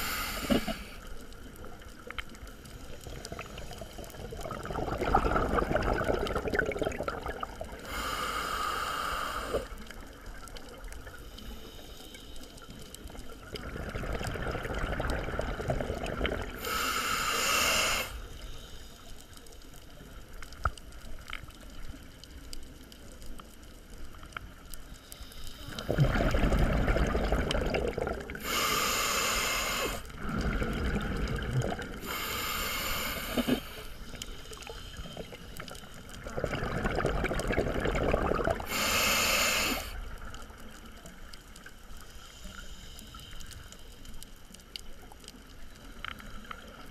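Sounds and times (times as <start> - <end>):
regulator hissing inhales: 0.0 - 1.2, 7.8 - 10.0, 16.6 - 19.2, 25.0 - 25.9, 28.4 - 30.2, 32.0 - 35.6, 38.6 - 40.2
bubbling exhales: 3.1 - 9.9, 13.4 - 18.2, 25.7 - 40.2.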